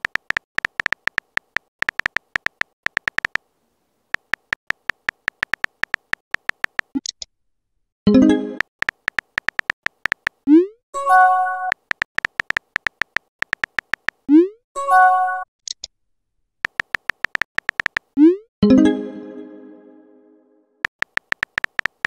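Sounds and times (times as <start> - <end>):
keyboard typing clicks: 0.0 - 3.4, 4.1 - 7.3, 8.5 - 10.6, 11.6 - 14.4, 16.6 - 18.2, 20.8 - 22.0.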